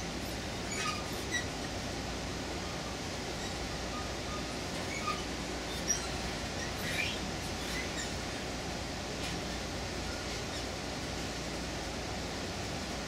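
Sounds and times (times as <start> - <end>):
train car rumbling: 0.0 - 13.0
faint high squeaks: 0.6 - 1.5, 3.4 - 8.2.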